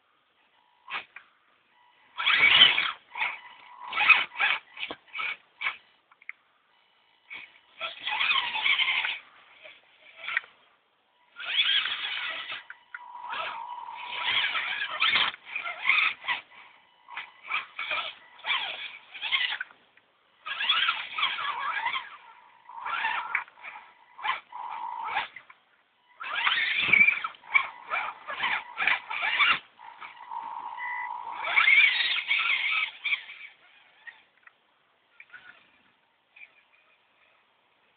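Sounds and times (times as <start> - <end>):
electric toy car motor whining: 0.8 - 1.2, 1.8 - 5.9, 7.2 - 10.5, 11.2 - 19.8, 20.4 - 34.3, 35.2 - 37.5
thin steady high tone: 11.0 - 19.6, 20.3 - 33.2.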